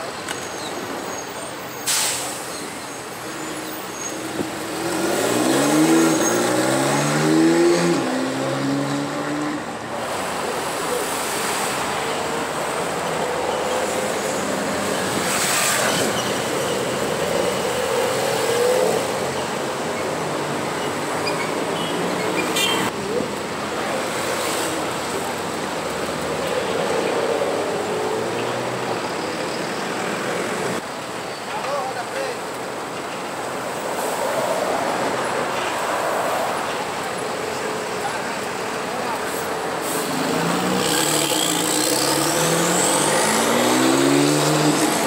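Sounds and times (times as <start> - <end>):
street traffic noise: 0.0 - 45.0
car engines accelerating: 4.4 - 30.8, 38.6 - 45.0.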